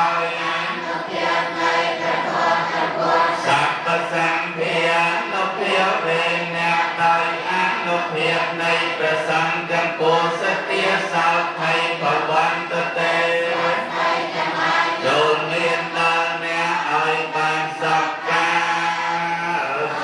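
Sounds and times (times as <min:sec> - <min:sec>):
monks chanting in monotone: 0:00.0 - 0:20.0
person chanting into microphone: 0:00.0 - 0:20.0.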